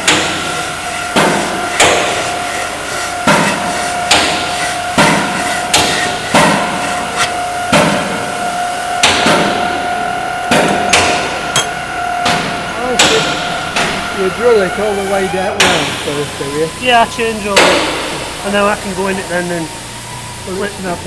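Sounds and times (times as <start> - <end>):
hacksaw cutting metal: 0.0 - 8.0, 10.5 - 14.8
steady ringing tone: 0.0 - 21.0.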